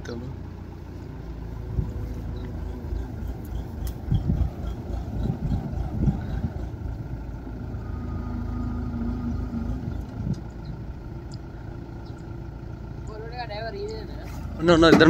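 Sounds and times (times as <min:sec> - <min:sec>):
combine harvester engine drone: 0:00.0 - 0:15.0
wind buffeting microphone: 0:01.6 - 0:07.8, 0:09.0 - 0:10.9.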